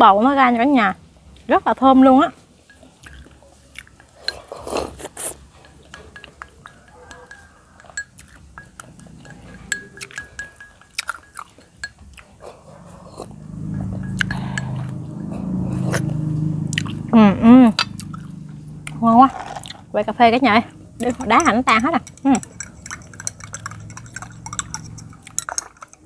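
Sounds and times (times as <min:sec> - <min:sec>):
chewing: 0:02.8 - 0:17.0, 0:17.8 - 0:19.9, 0:21.0 - 0:26.0
chopsticks clicking on ceramic bowl: 0:05.7 - 0:12.0, 0:21.0 - 0:26.0
low hum: 0:11.8 - 0:25.4.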